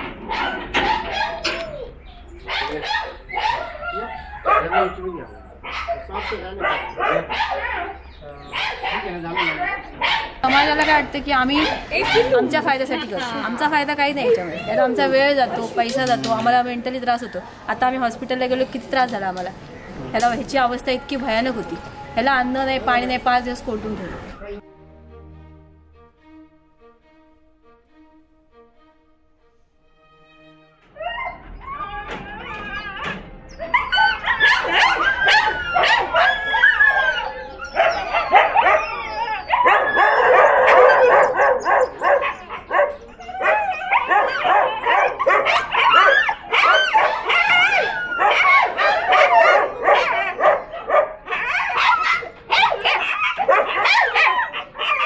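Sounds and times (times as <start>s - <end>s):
dogs howling and whining: 0.0s - 13.4s, 30.8s - 55.0s
dogs barking and yipping: 0.0s - 17.7s, 30.8s - 55.0s.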